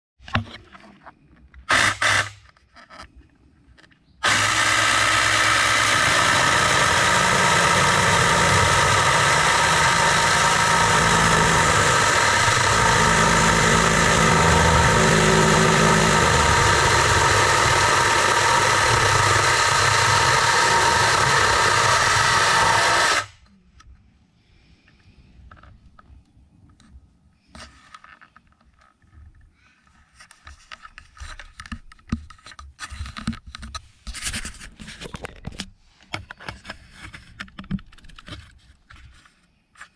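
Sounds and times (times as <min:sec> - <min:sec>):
electric chainsaw cutting wood: 0:01.7 - 0:02.4, 0:04.2 - 0:23.4.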